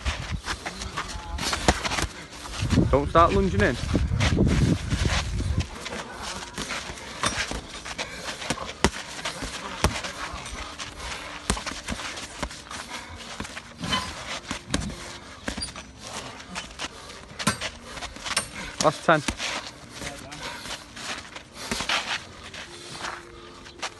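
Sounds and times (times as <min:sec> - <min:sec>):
feet shuffling on dirt: 0:00.0 - 0:23.9
boxing gloves slapping: 0:06.3 - 0:12.7, 0:13.4 - 0:15.8.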